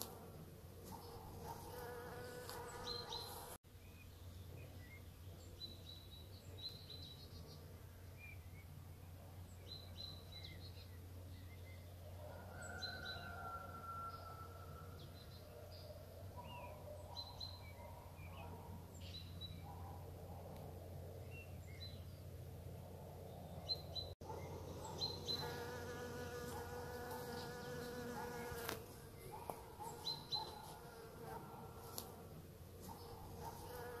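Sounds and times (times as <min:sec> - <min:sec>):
insect buzzing: 0:01.5 - 0:03.6, 0:25.2 - 0:29.0, 0:33.5 - 0:34.0
small birds chirping: 0:23.3 - 0:32.0.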